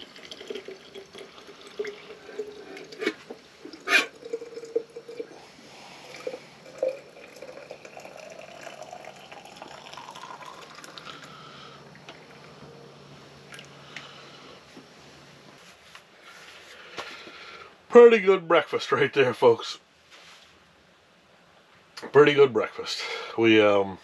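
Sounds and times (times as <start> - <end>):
hot liquid pouring into flask: 0.0 - 12.6.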